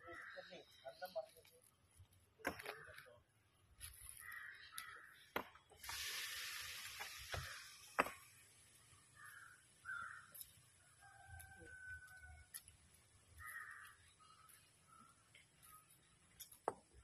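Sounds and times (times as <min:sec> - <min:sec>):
crows cawing: 0:00.0 - 0:00.8, 0:04.0 - 0:05.3, 0:09.1 - 0:10.5, 0:13.2 - 0:15.3
hiss: 0:05.7 - 0:09.4.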